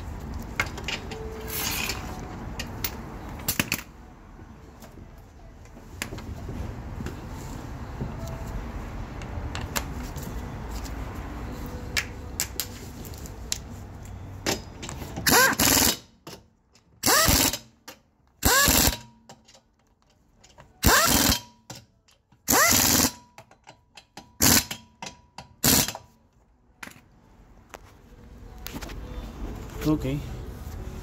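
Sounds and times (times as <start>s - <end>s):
impact wrench whining bursts: 15.2s - 16.1s, 17.0s - 17.8s, 18.4s - 19.1s, 20.8s - 21.5s, 22.5s - 23.2s, 24.4s - 24.8s, 25.6s - 26.0s.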